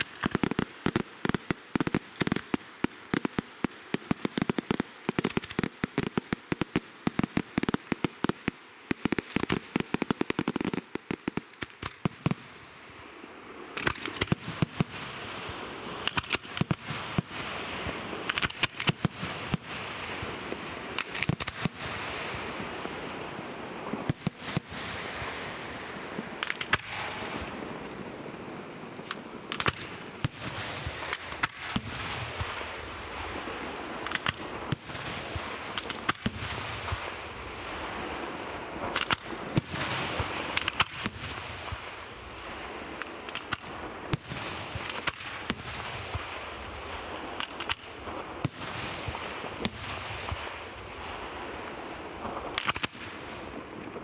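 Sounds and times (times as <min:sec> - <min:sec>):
dense firework crackling: 0:00.0 - 0:54.0
firework shells bursting: 0:24.1 - 0:32.9.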